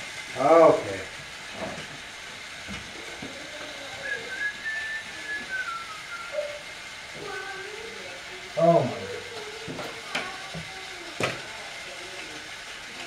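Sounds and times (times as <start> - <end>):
person whistling: 4.0 - 6.6.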